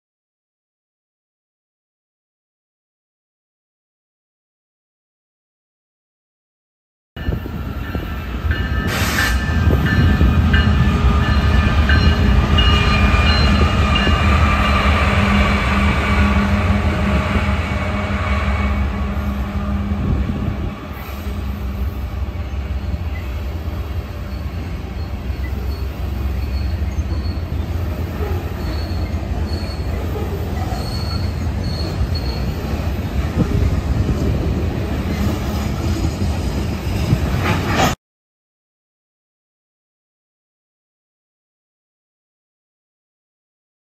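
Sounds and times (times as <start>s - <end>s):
locomotive engines droning: 7.2s - 37.8s
high-pitched wheel squeals: 22.8s - 32.8s.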